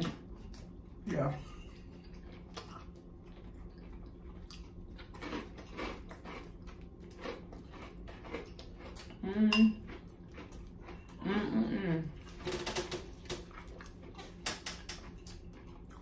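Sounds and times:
voice humming: 9.2 - 9.8, 11.2 - 12.2.

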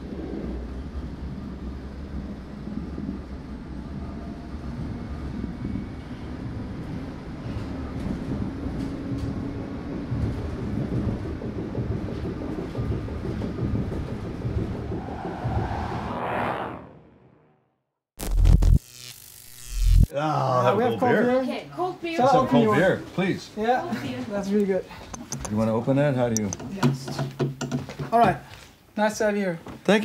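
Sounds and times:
underground train rumble: 0.0 - 16.5.

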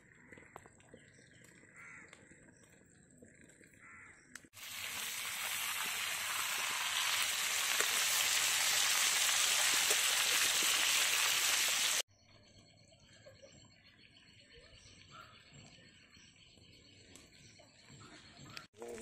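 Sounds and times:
fish sizzling in hot oil: 4.6 - 12.0.

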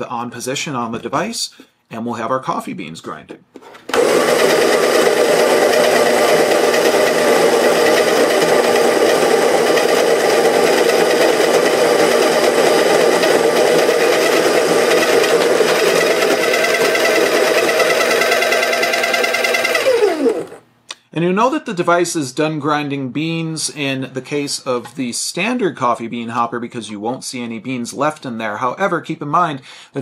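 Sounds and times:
electric coffee grinder grinding: 3.9 - 20.6.

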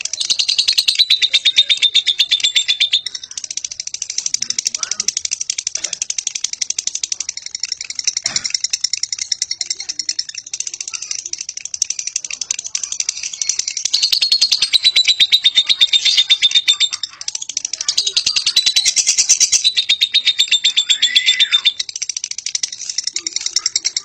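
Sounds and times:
lovebird shrill clicking chatter: 0.0 - 24.0.

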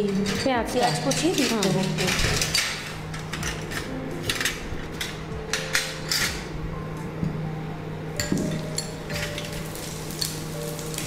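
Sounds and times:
metal spoon clinking glass bowls: 0.0 - 4.6, 5.5 - 6.4, 8.2 - 10.4
steady low hum: 0.0 - 11.0.

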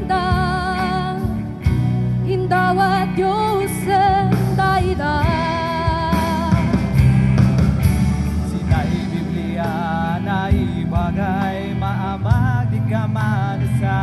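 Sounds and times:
singer with vibrato: 0.0 - 1.6, 2.2 - 7.0
rock band playing: 0.0 - 14.0.

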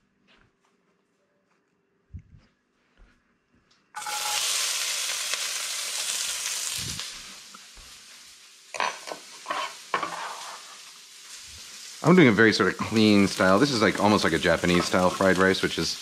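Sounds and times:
carrot sizzling in hot oil: 4.0 - 16.0
knife scraping cutting board: 8.8 - 10.6.

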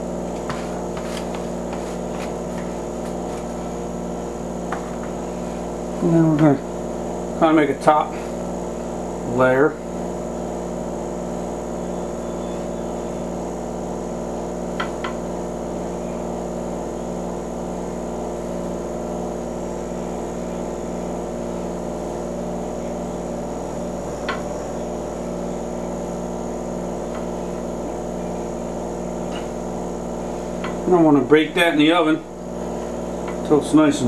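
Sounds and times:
steady electrical hum: 0.0 - 34.0.

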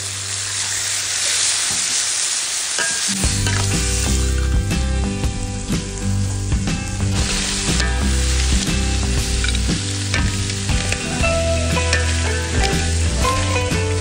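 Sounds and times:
food sizzling in hot oil: 0.0 - 14.0.

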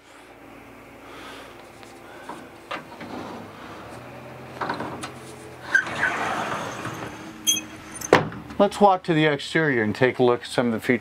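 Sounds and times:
sliding closet door rub: 2.8 - 8.0.

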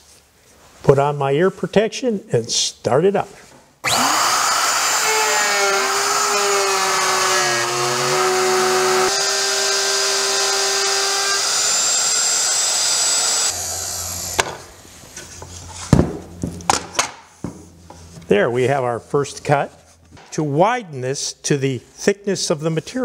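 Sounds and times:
router whining: 3.8 - 14.8.

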